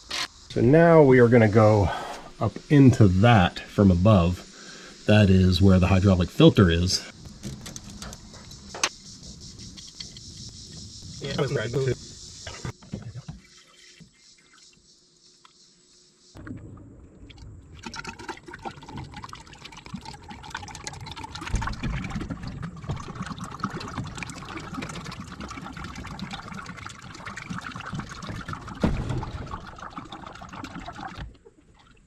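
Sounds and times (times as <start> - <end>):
fluid pouring into tank: 17.3 - 32.0.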